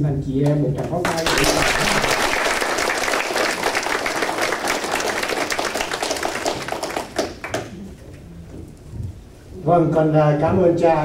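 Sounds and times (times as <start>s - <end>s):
audience applauding: 1.0s - 7.8s.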